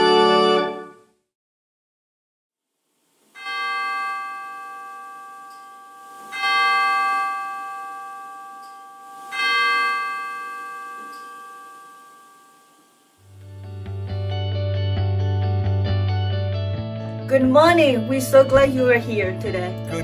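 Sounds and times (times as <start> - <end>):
bell tolling: 3.4 - 13.2.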